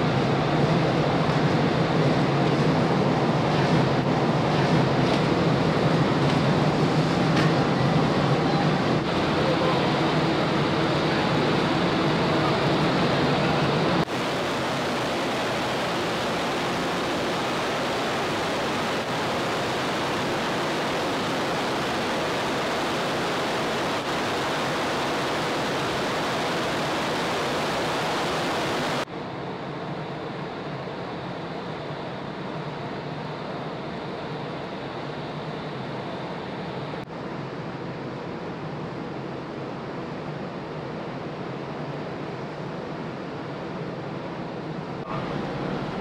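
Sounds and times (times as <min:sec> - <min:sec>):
wind and sea water rushing: 0:08.0 - 0:29.1.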